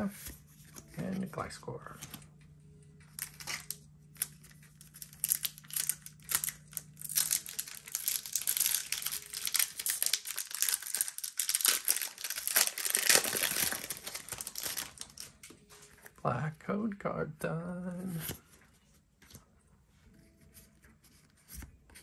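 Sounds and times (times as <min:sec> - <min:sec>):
foil wrapper crinkling: 0:03.0 - 0:16.1.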